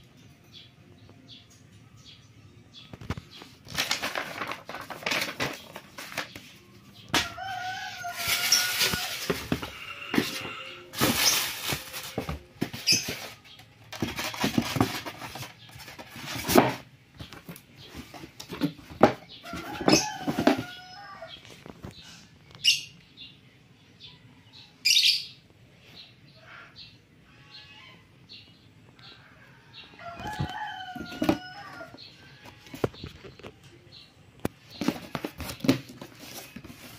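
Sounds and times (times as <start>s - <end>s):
cardboard and paper rustling: 3.0s - 21.8s, 30.1s - 32.0s, 34.8s - 36.9s.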